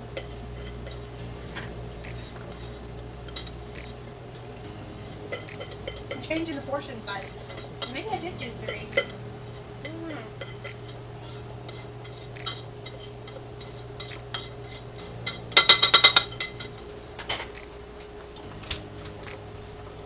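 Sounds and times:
utensil scraping a saucepan: 5.0s - 16.6s
ringing metal taps on pan: 15.2s - 17.6s.

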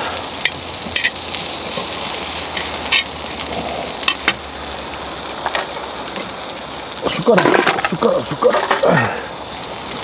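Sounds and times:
rice sizzling in a pan: 0.0s - 10.0s.

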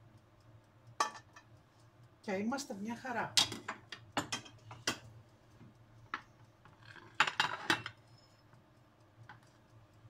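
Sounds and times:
utensils clinking on ceramic plates: 6.8s - 8.0s.

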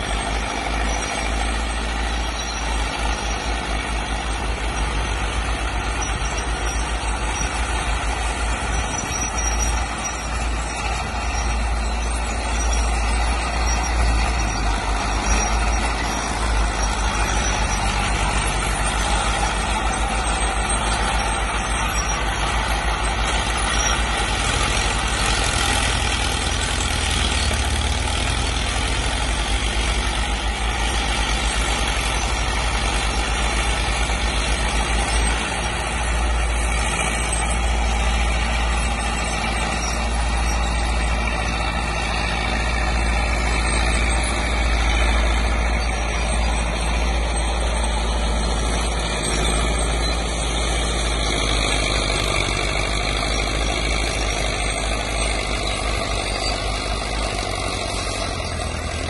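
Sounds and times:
crawler tractor engines running: 0.0s - 59.0s.

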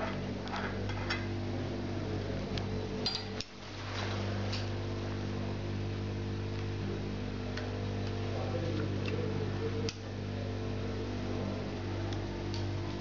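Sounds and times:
steady low hum: 0.0s - 13.0s
light metallic clicks and clinks: 3.0s - 3.5s.

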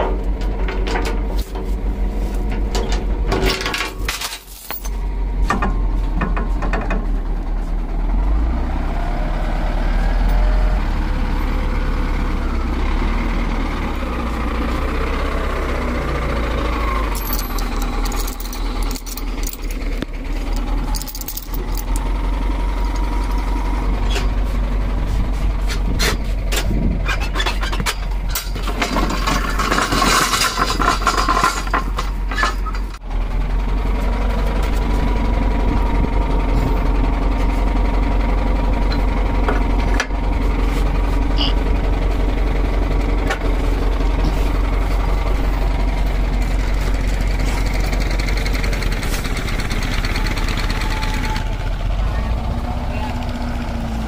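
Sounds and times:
metal clanks and rattles: 0.0s - 7.7s, 15.6s - 33.0s, 34.0s - 41.2s
diesel engine running: 0.0s - 54.0s.

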